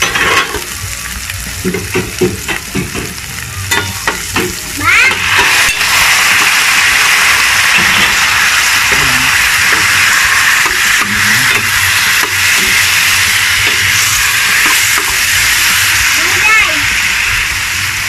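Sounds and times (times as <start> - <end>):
chicken sizzling in hot oil: 0.0 - 18.0.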